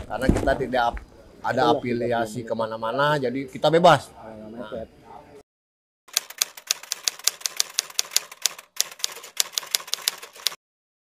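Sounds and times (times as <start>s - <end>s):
typewriter keystroke clicks: 6.1s - 10.6s.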